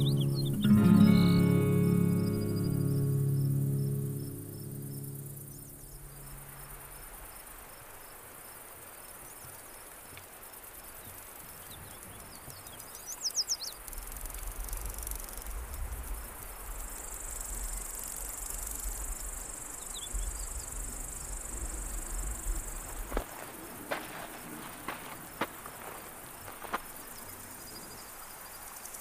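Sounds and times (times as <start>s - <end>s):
bird chirps: 0.0s - 6.5s, 11.6s - 13.8s
insects chirring: 0.0s - 29.0s.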